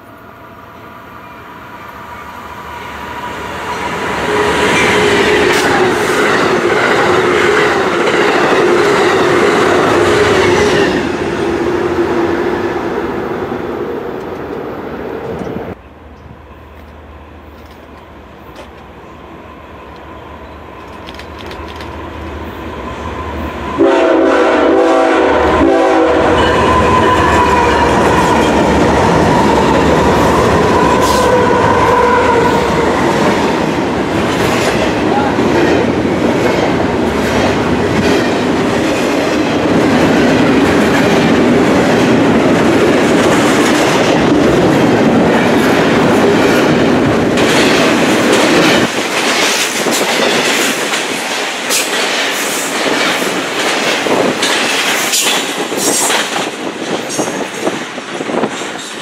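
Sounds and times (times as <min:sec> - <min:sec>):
deep locomotive engine rumble: 0:00.0 - 0:59.0
train horn blast: 0:23.7 - 0:28.6, 0:30.8 - 0:33.0.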